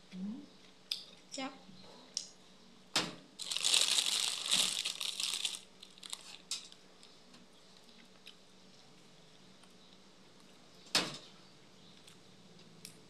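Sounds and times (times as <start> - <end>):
plastic wrapping crinkling: 3.4 - 6.6.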